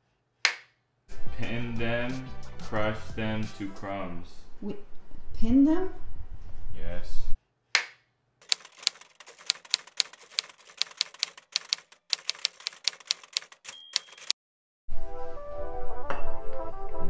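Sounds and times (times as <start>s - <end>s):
typewriter keys clicking: 8.4s - 14.4s.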